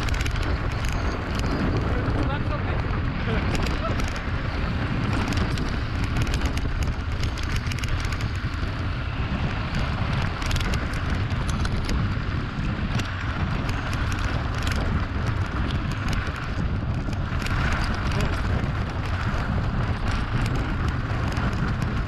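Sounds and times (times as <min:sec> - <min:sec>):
bike rattling and clicking: 0:00.0 - 0:22.0
wind on microphone: 0:00.0 - 0:22.0.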